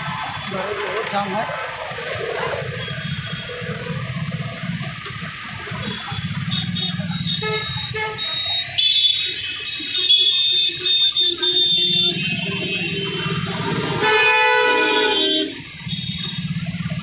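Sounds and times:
motorcycle engine running: 0.0s - 8.7s, 10.5s - 17.0s
vehicle horns honking: 5.8s - 16.6s.

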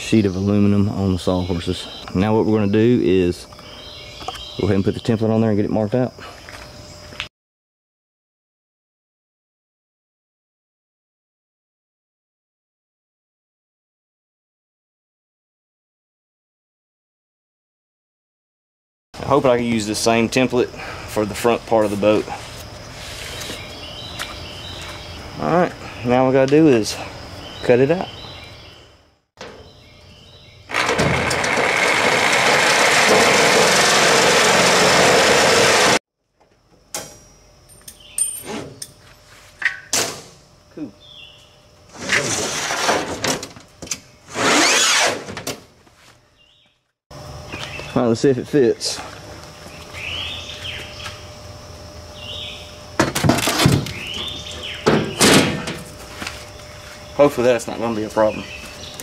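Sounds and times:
electric saw cutting metal sheet: 30.7s - 36.0s, 44.3s - 45.4s
metal sheet scraping against boat hull: 41.9s - 43.4s.

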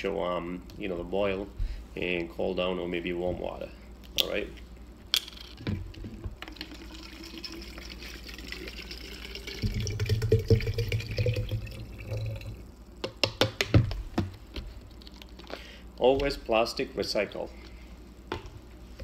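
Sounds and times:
water pouring into bottle: 6.5s - 12.7s.

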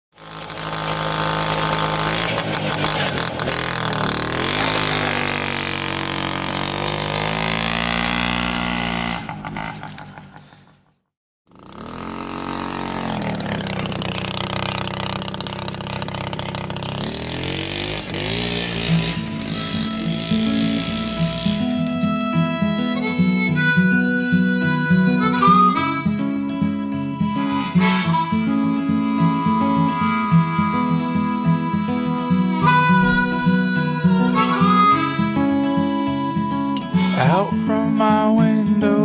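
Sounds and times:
engine revving: 0.1s - 10.9s, 11.5s - 37.6s
music: 18.8s - 39.0s.

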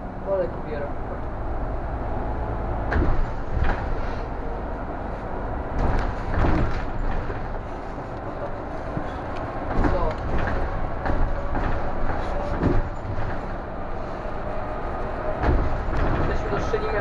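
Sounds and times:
bus engine rumble: 0.0s - 17.0s
knocks and rattles: 2.8s - 4.4s, 5.6s - 17.0s.

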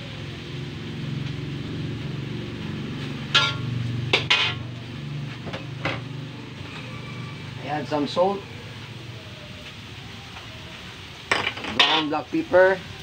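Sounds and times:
utensil clinking against dishes: 11.3s - 12.2s.

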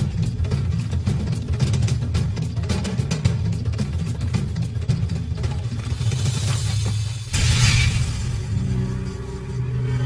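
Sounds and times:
dramatic soundtrack music: 0.0s - 10.0s
noisy crash hit: 7.3s - 8.5s.

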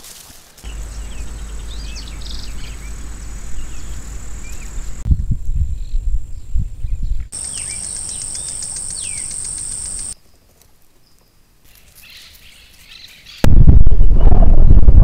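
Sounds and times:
high-pitched insect buzz: 0.7s - 5.0s, 7.4s - 10.2s
low rumble: 0.7s - 7.8s, 13.5s - 15.0s
short bird chirps: 7.4s - 10.2s.

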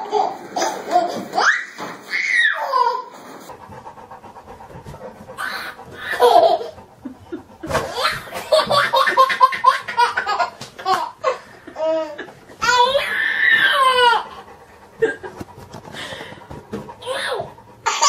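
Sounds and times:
baby laughing: 0.0s - 3.1s, 5.4s - 14.4s, 16.0s - 18.0s.

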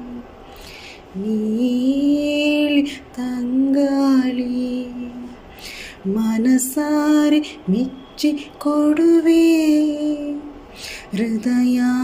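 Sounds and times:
woman singing: 0.0s - 0.3s, 1.1s - 5.4s, 6.0s - 12.0s.

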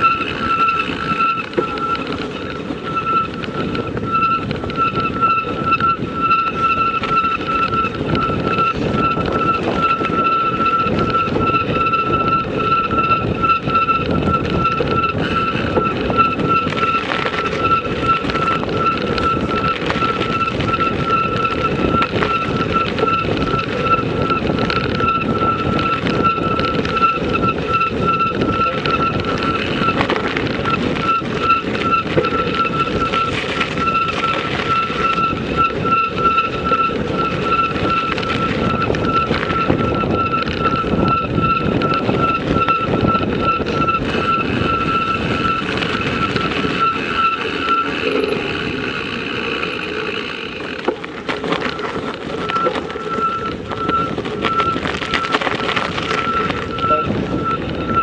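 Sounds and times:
rolling noise of a ride: 0.0s - 58.0s
steady high whine: 0.0s - 58.0s.

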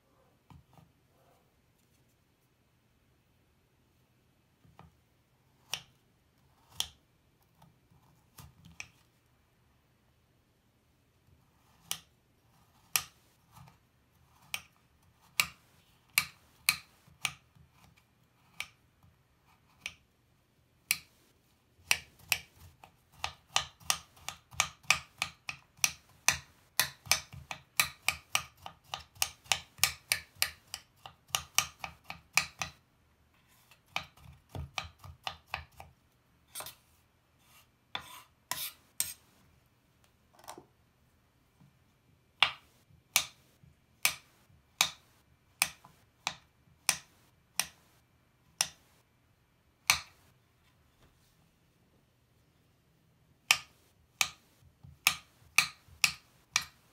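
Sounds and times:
knife chopping on stone board: 38.0s - 39.2s.

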